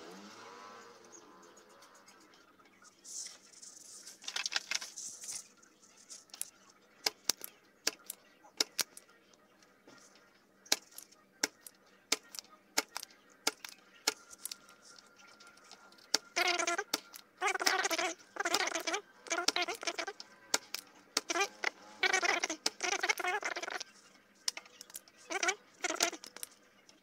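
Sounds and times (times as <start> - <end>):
hand tools clicking on circuit board: 6.3 - 9.0.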